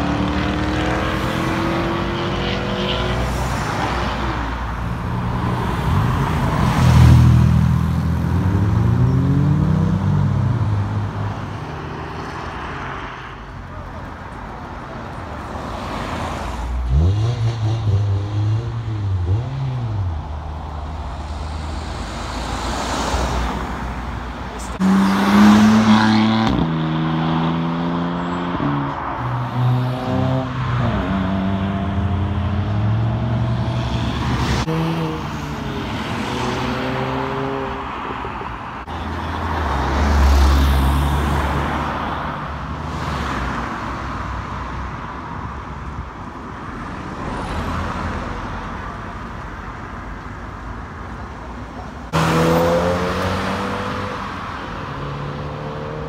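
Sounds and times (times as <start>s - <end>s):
cars accelerating past: 0.0s - 13.2s, 24.8s - 44.1s, 52.1s - 56.0s.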